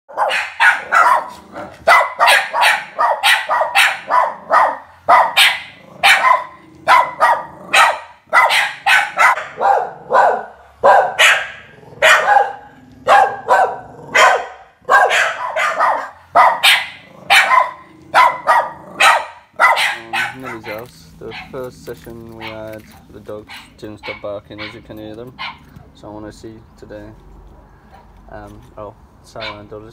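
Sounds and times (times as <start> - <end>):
dogs barking: 0.1 - 21.7, 22.3 - 25.8, 29.4 - 29.8.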